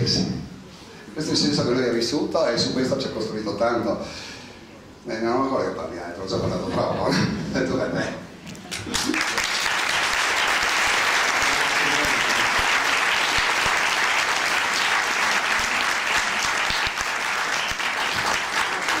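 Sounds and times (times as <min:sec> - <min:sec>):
audience applauding: 0:08.6 - 0:19.0.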